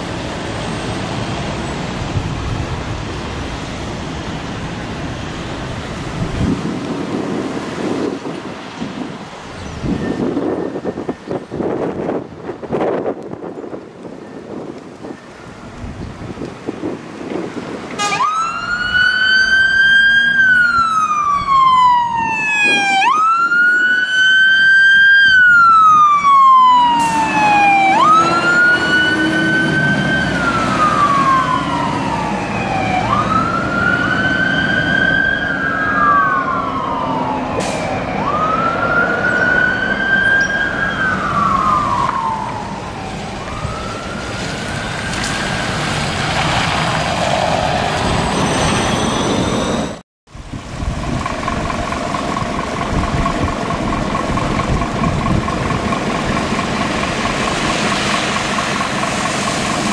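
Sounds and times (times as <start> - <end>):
vehicle running and road noise: 0.0 - 59.9
fire engine siren wailing: 17.6 - 59.9.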